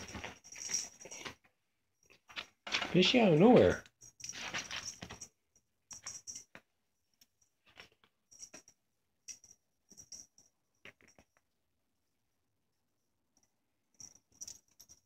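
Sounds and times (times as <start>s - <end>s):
collar tag jingling: 0.0s - 1.4s, 2.7s - 6.5s.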